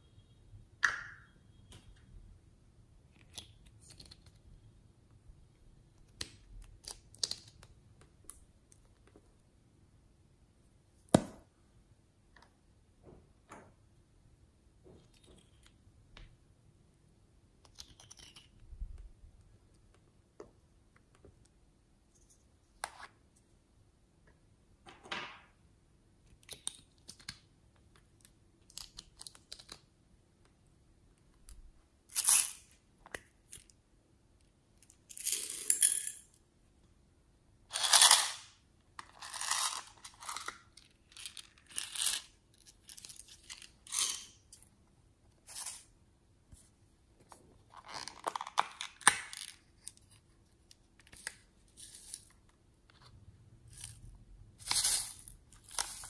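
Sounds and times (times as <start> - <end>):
sprinkles rustling and rattling: 54.6 - 56.0.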